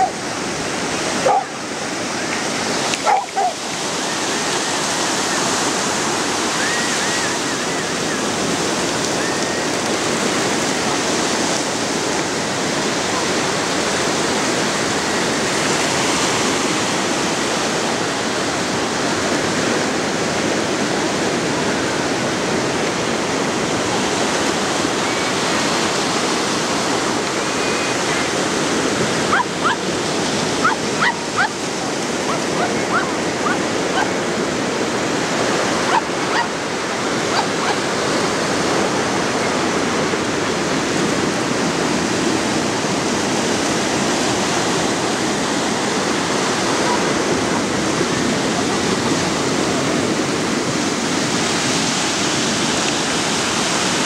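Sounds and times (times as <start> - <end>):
dog barking: 0.0 - 0.2, 1.2 - 1.6, 3.0 - 3.6, 29.3 - 29.9, 30.6 - 31.6, 32.2 - 34.1, 35.9 - 36.6, 37.3 - 37.8, 46.8 - 47.1
small surf waves breaking: 0.0 - 54.0.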